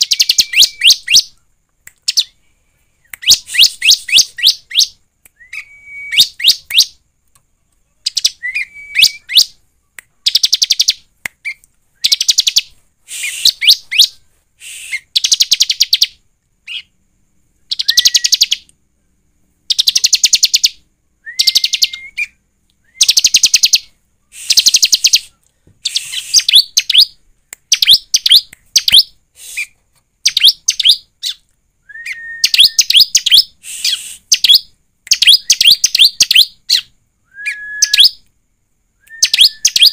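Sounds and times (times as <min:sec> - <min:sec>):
bird whistle sweeping up: 0:00.0 - 0:01.3, 0:03.2 - 0:06.6, 0:08.4 - 0:09.4, 0:17.7 - 0:18.6, 0:21.2 - 0:23.5, 0:24.4 - 0:27.0, 0:31.9 - 0:34.6, 0:37.3 - 0:38.2, 0:39.1 - 0:39.9
bird singing rapid trills: 0:00.0 - 0:01.4, 0:17.7 - 0:18.7, 0:39.2 - 0:39.9.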